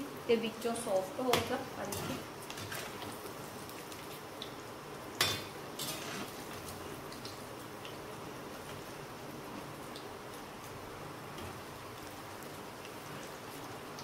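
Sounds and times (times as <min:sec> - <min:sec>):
cheese frying in hot oil: 0:00.0 - 0:14.0
metal spoon clanking against pan: 0:05.2 - 0:06.1.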